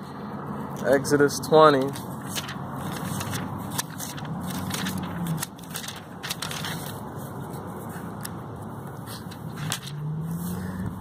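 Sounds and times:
thin pages rustling: 1.8 - 8.4, 9.5 - 10.7.

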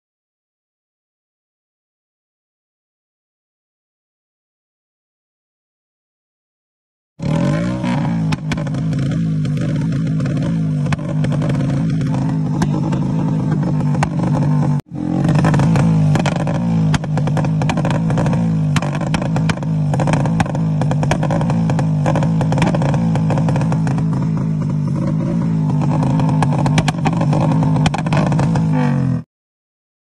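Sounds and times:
exhaust pops and crackles: 7.2 - 29.2
motorcycle engine at high revs: 7.2 - 29.3.

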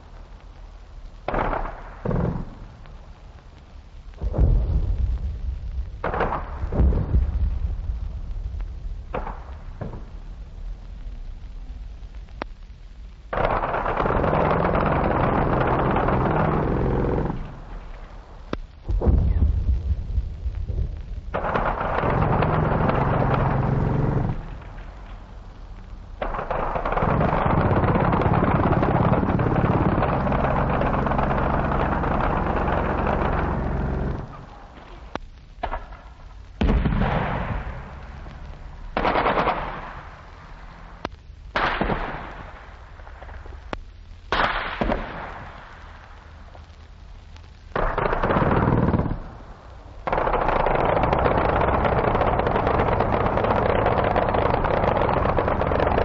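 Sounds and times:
machine-gun fire: 1.3 - 2.8, 6.0 - 7.5, 13.3 - 18.2, 21.3 - 25.2, 26.2 - 36.0, 36.6 - 43.3, 44.3 - 45.7, 47.7 - 56.0.

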